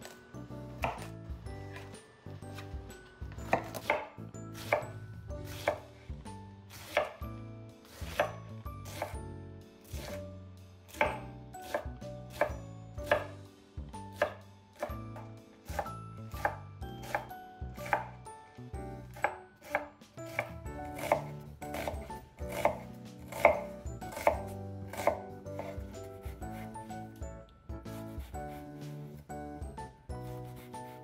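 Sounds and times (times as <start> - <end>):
knife chopping on wooden board: 0.7 - 1.1, 3.4 - 5.9, 6.7 - 7.2, 8.0 - 9.2, 10.9 - 13.4, 14.2 - 18.2, 19.1 - 26.8.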